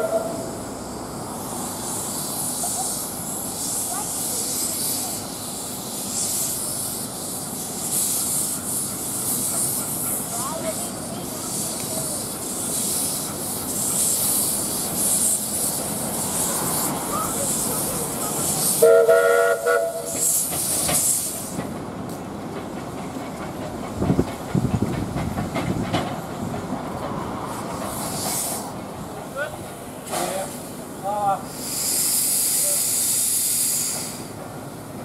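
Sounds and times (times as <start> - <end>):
steam whistle blast: 0.0 - 0.6, 18.8 - 20.3
steam hissing: 0.0 - 35.0.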